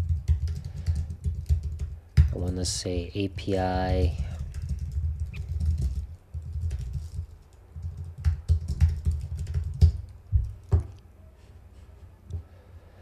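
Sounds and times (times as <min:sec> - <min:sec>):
typing on computer keyboard: 0:00.0 - 0:02.5, 0:04.0 - 0:10.8.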